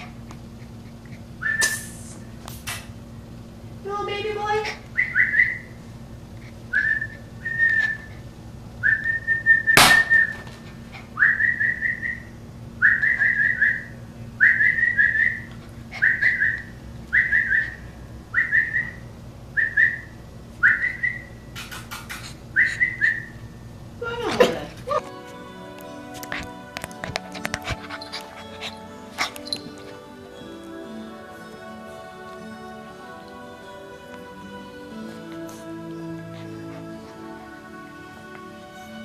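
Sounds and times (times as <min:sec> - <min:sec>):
puppy whining: 0:06.4 - 0:12.2, 0:12.8 - 0:19.0, 0:20.6 - 0:23.4, 0:24.0 - 0:39.0.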